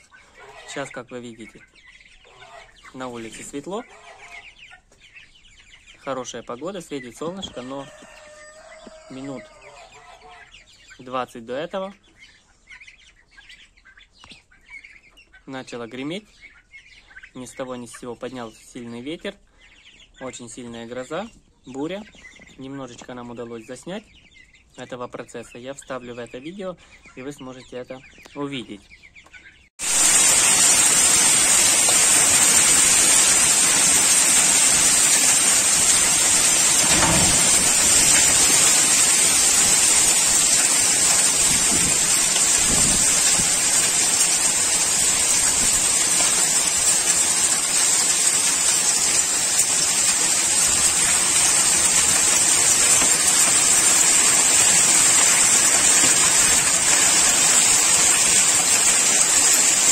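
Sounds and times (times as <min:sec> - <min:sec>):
heavy rain and hail: 0:29.8 - 0:59.9
low thunder rumbles: 0:35.6 - 0:40.3.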